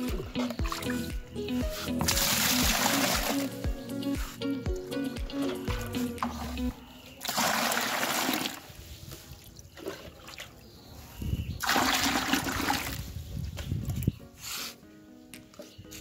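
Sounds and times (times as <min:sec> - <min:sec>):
background music: 0:00.0 - 0:07.9, 0:11.6 - 0:16.0
water pouring into a bucket: 0:02.1 - 0:03.5, 0:07.2 - 0:08.8, 0:11.6 - 0:13.0.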